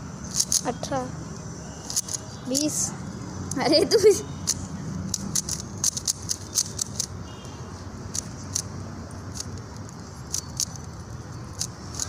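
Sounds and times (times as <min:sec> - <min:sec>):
puzzle cube layers clicking: 0:00.3 - 0:00.7, 0:01.9 - 0:02.8, 0:04.4 - 0:07.1, 0:08.1 - 0:08.7, 0:09.3 - 0:10.9, 0:11.5 - 0:12.0.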